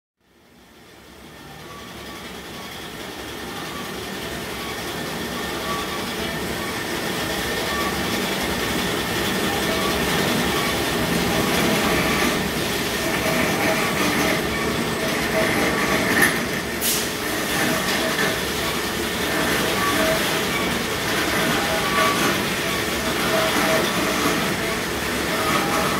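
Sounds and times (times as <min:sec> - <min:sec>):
band saw running: 0:01.3 - 0:25.9.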